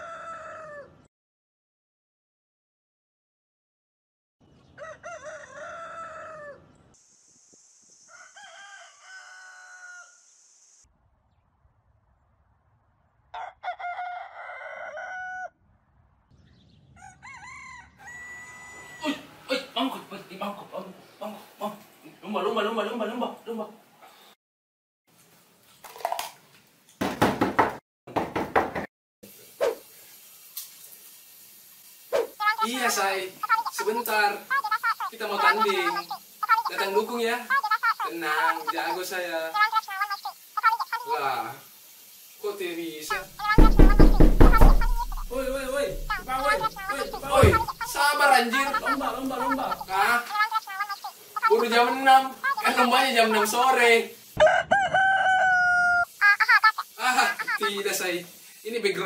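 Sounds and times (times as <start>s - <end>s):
rooster crowing: 0.0s - 1.1s, 4.8s - 6.7s, 8.1s - 10.2s, 13.3s - 15.6s, 17.0s - 19.4s, 43.1s - 53.0s, 54.4s - 57.5s
steady high hiss: 7.0s - 8.2s, 10.0s - 10.9s, 29.2s - 54.4s, 56.0s - 59.0s
plastic cups clattering on tiles: 25.8s - 26.4s
thump: 43.6s - 47.8s.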